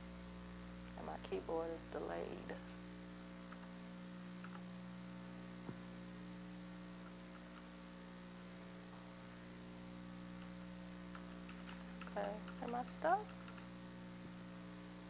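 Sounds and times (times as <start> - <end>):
electrical mains hum: 0.0 - 15.0
faint clicks: 4.4 - 4.6, 10.4 - 13.7.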